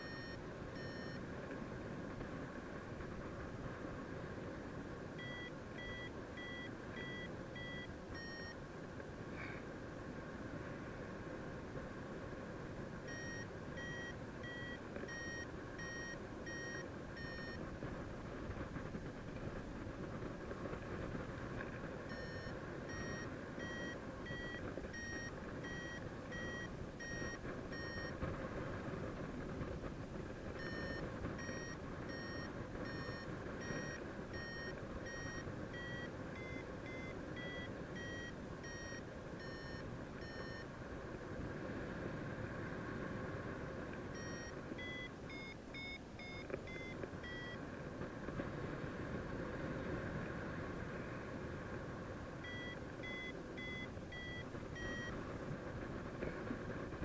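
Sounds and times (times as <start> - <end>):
variometer beeping: 0.0 - 1.3, 5.1 - 8.6, 13.0 - 18.9, 20.7 - 29.0, 30.2 - 40.8, 44.1 - 47.6, 52.4 - 55.8.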